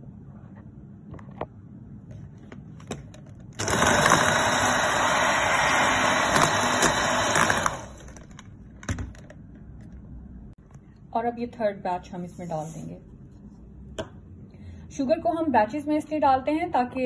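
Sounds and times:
electric hand mixer running: 3.6 - 8.4.

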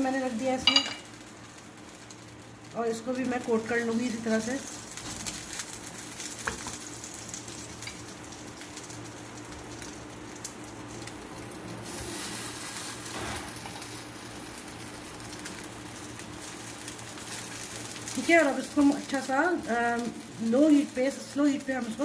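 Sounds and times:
patties sizzling in oil: 0.0 - 22.0.

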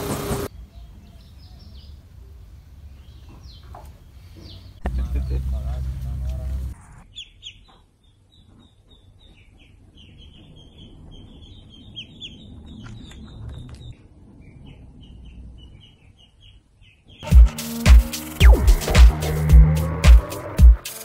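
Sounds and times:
duckling peeping: 7.0 - 17.3
loud music: 17.2 - 21.0.

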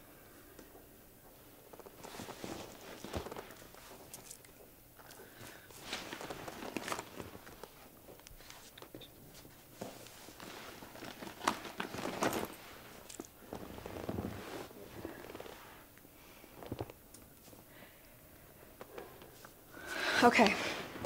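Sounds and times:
people shifting on leather sofa: 0.7 - 17.7
handbag rustling and clicking: 1.6 - 7.8, 9.8 - 15.6.

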